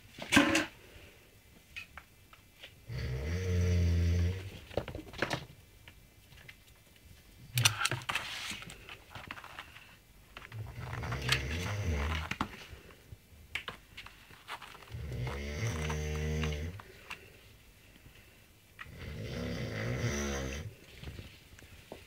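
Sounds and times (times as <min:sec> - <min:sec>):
ferret snoring: 0:02.9 - 0:04.5, 0:10.6 - 0:12.3, 0:14.9 - 0:16.8, 0:18.9 - 0:20.8
faint rustling and clicks: 0:04.4 - 0:19.0, 0:20.7 - 0:22.0.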